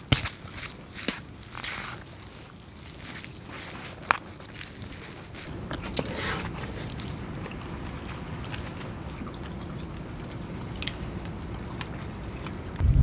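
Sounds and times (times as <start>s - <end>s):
low wind rumble: 12.6s - 13.0s.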